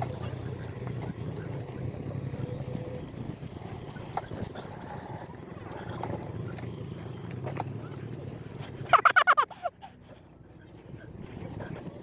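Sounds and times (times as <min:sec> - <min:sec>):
motorcycle engine running: 0:00.0 - 0:09.0.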